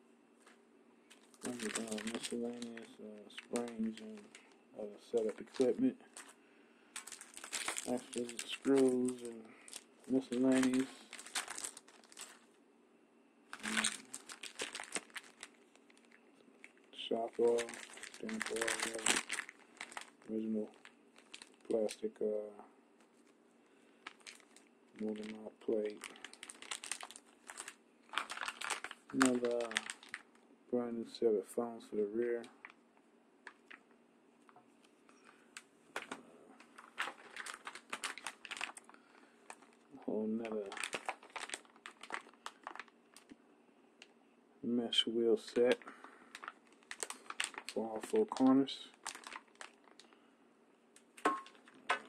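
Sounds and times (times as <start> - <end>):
plastic bags crinkling: 1.1 - 12.5, 13.5 - 22.2, 24.0 - 30.4, 33.4 - 33.9, 35.2 - 43.4, 45.6 - 50.2, 51.0 - 52.0.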